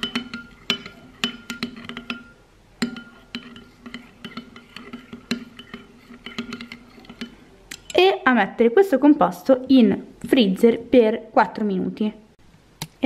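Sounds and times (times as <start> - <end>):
metal spoon clinking on glass bowl: 0.0 - 8.0.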